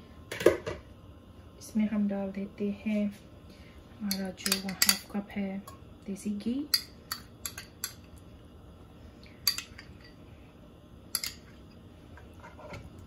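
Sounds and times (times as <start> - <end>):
low steady hum: 0.0 - 13.0
metal spoon clinking on glass bowl: 11.2 - 11.4.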